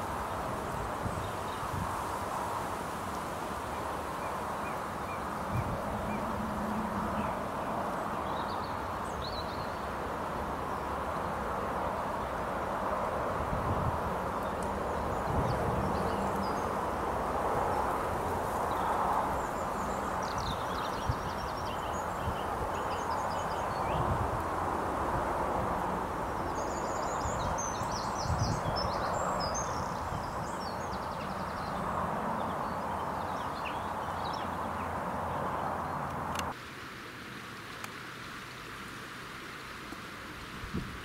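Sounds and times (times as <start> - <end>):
small birds chirping: 26.3 - 36.5.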